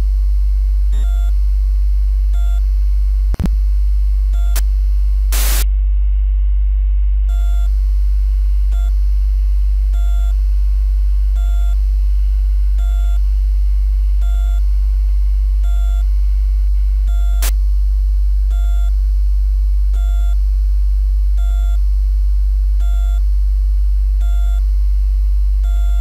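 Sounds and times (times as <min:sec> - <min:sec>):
low synth drone: 0:25.7 - 0:26.0.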